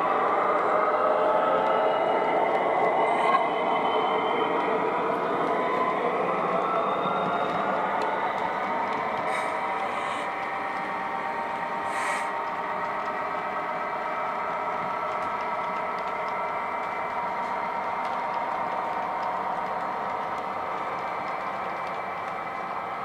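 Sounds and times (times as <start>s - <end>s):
model train whirring hum: 0.0s - 23.0s
short hisses: 11.9s - 12.3s.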